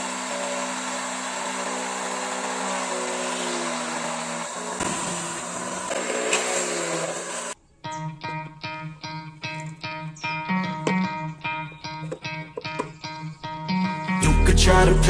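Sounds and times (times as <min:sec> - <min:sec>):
drill press whining: 0:00.0 - 0:07.6.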